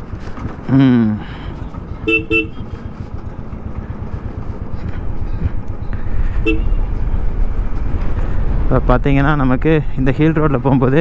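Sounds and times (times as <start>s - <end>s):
motorcycle engine running: 0.0s - 11.0s
vehicle horn toots: 2.0s - 2.8s, 6.4s - 6.9s.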